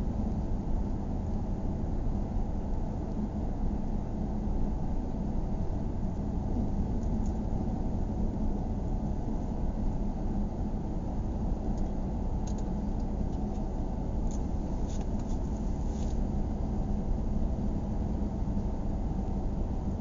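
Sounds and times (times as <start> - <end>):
car engine and tyre rumble: 0.0 - 20.0.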